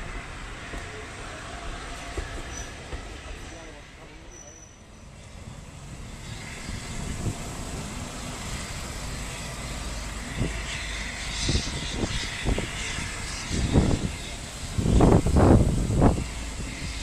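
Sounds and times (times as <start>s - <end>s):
steam hiss: 0.0s - 17.0s
train coaches rumbling: 0.0s - 17.0s.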